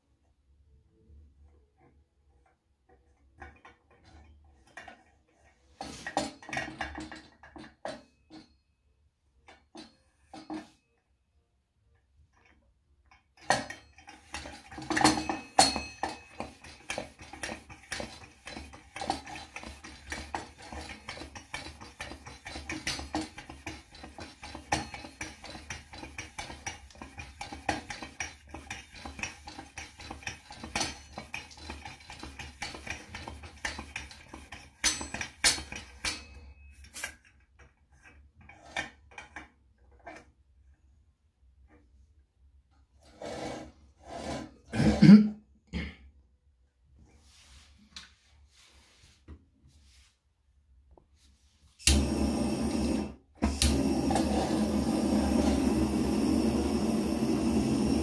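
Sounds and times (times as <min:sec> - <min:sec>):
stove hand pump clicking: 0:13.1 - 0:36.3.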